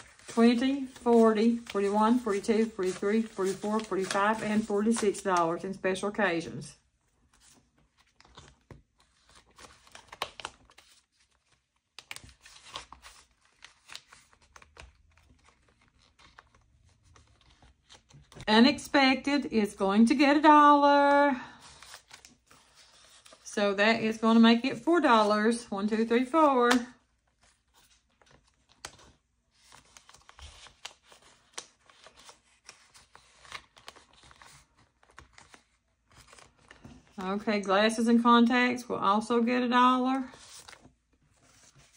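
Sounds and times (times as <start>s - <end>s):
paper rustling and crinkling: 0.0s - 5.7s, 7.2s - 18.5s, 21.5s - 23.5s, 26.4s - 37.7s, 40.2s - 41.9s
paper money rustling: 0.0s - 6.2s, 27.4s - 37.4s.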